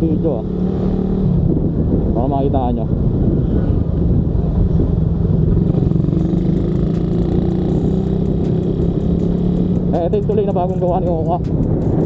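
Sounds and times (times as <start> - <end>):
road and wind rumble: 0.0 - 12.0
motorcycle engine running: 4.6 - 12.0.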